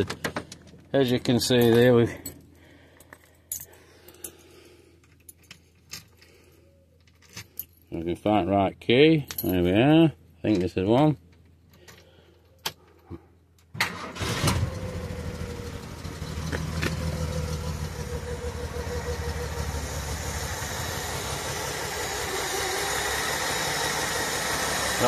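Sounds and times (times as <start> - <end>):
car engine starting and idling: 13.6 - 25.0.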